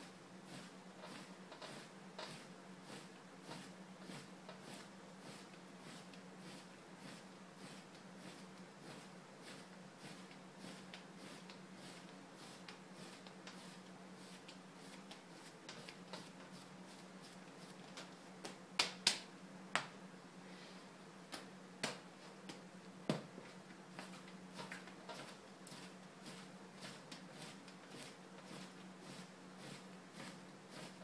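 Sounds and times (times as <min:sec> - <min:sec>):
steady low hum: 0:00.0 - 0:31.0
clay pushed and rolled by hand: 0:00.5 - 0:18.6
clay clicks and slaps: 0:17.9 - 0:20.0, 0:21.3 - 0:23.3.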